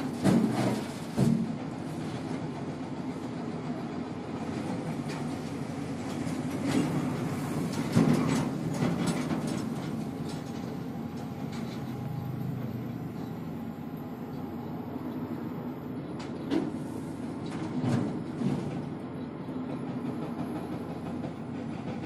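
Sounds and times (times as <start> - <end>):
diesel engines rumbling: 0.0 - 22.0
truck clanking and rattling: 0.0 - 22.0.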